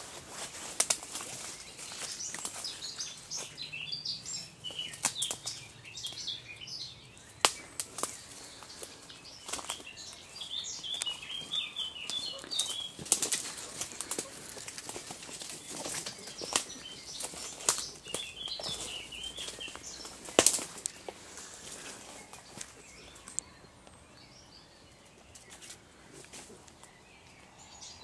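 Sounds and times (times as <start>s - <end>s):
footsteps crackling through dry leaves: 0.0s - 6.4s, 7.2s - 23.4s
songbirds chirping: 0.0s - 28.0s
twig cracking: 0.6s - 2.7s, 4.9s - 6.2s, 7.4s - 10.2s, 10.8s - 11.2s, 12.0s - 23.4s.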